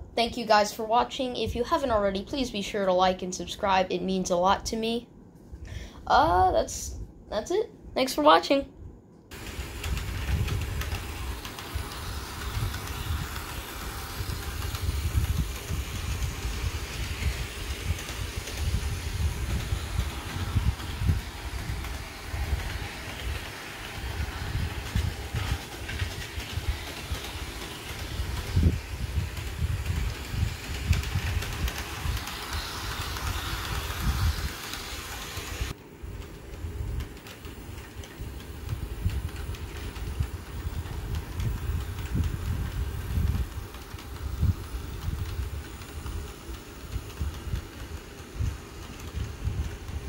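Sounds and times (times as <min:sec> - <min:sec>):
high hiss: 0:09.3 - 0:35.8
model train rumbling on track: 0:09.3 - 0:50.0.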